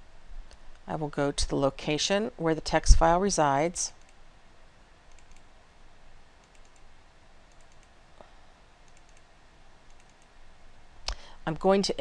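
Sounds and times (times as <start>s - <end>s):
low steady hiss: 0.0s - 12.0s
faint computer mouse clicks: 6.4s - 6.9s, 7.5s - 8.0s, 8.8s - 9.3s, 9.9s - 10.3s.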